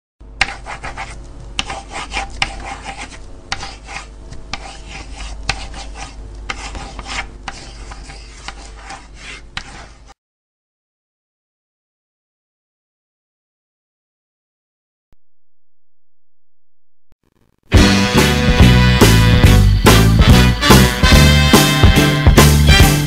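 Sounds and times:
low hum: 15.1s - 17.5s.

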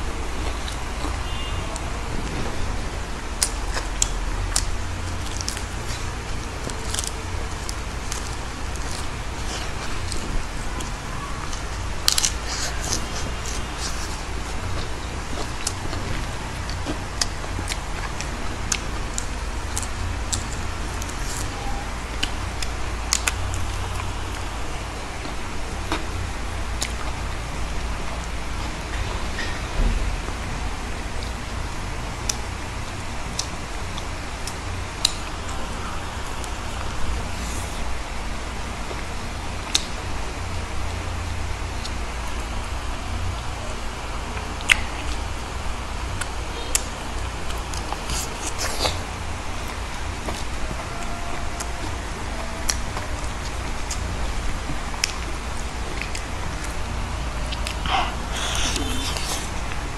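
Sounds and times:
steady low hum: 0.0s - 59.9s
steady low rumble: 0.0s - 59.9s
crisp biting and chewing: 0.3s - 24.6s, 46.2s - 59.9s
lettuce leaf crunching when bitten: 47.7s - 49.0s, 57.5s - 59.8s.

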